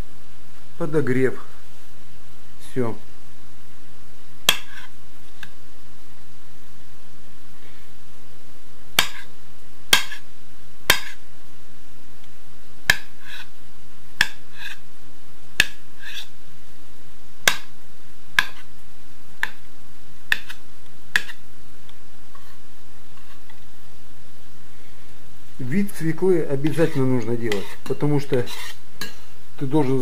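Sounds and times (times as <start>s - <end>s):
knife chopping on cutting board: 9.0s - 9.3s, 9.9s - 10.2s, 10.9s - 11.2s, 12.9s - 13.5s, 14.2s - 14.8s, 15.6s - 16.2s, 17.4s - 17.7s, 18.4s - 18.6s, 20.3s - 21.4s.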